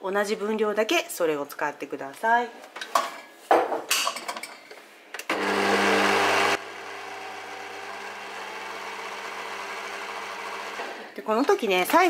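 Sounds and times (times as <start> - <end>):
stand mixer motor humming: 5.3 - 11.0.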